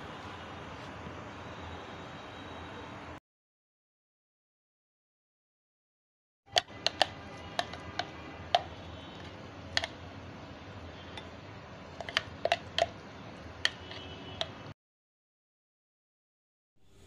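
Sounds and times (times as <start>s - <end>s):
metal spoon tapping plate: 6.5s - 8.8s, 9.7s - 10.0s, 12.0s - 13.0s, 13.6s - 14.7s.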